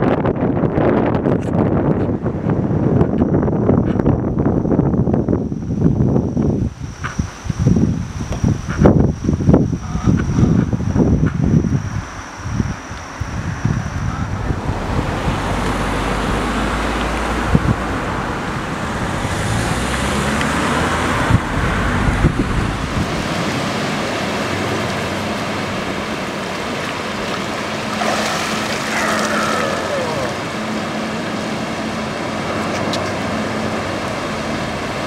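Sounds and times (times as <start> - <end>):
wind buffeting microphone: 0.0 - 35.0
water rushing: 14.4 - 35.0.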